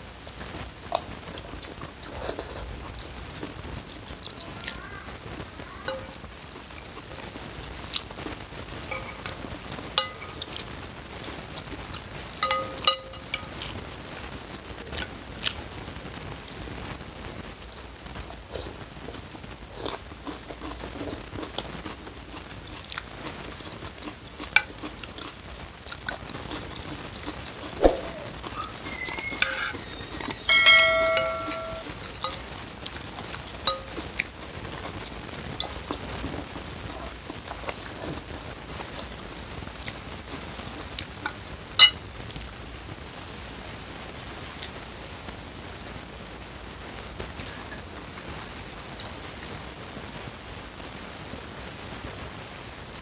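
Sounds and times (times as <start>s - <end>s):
man chewing: 0.3s - 4.8s, 5.9s - 15.6s, 18.4s - 42.5s
cutlery clinking on ceramic bowl: 5.9s - 6.2s, 8.9s - 9.3s, 10.0s - 10.6s, 12.4s - 13.7s, 27.8s - 32.5s, 33.6s - 34.2s, 41.8s - 42.0s.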